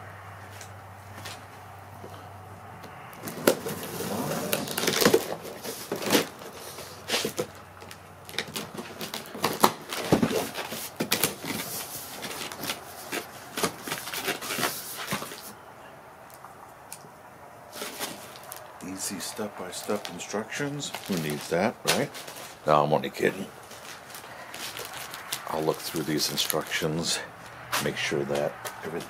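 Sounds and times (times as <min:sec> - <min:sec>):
cardboard box flaps crackling: 0:03.2 - 0:15.5.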